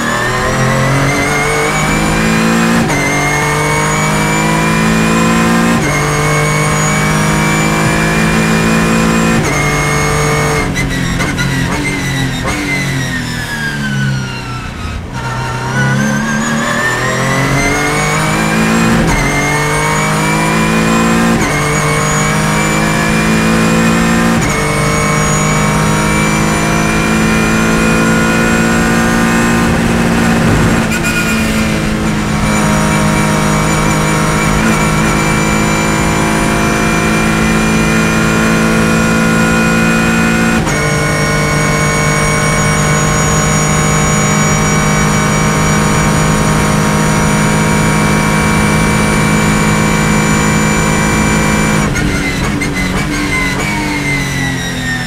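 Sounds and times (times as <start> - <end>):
race car engine revving: 0.0 - 55.0
gear upshifts: 20.8 - 37.6.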